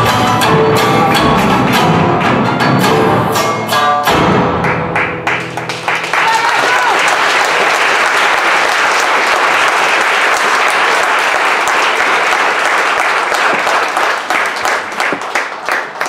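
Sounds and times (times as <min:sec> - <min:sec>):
audience applauding: 0:04.6 - 0:16.0.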